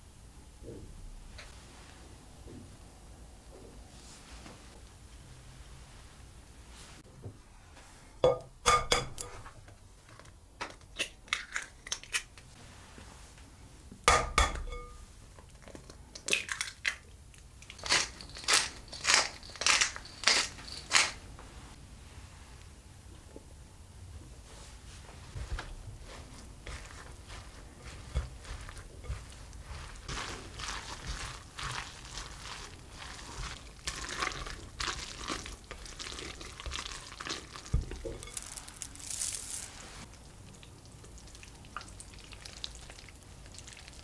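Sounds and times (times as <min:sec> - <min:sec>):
eggshell crackling: 0:16.2 - 0:21.2, 0:26.3 - 0:44.0
pepper mill grinding: 0:17.6 - 0:21.2, 0:26.6 - 0:39.8
spatula squelching in wet mixture: 0:26.0 - 0:44.0.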